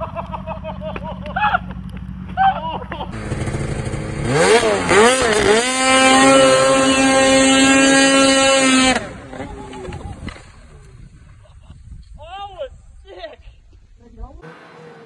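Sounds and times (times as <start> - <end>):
snowmobile engine revving: 0.0 - 11.3, 14.4 - 15.0.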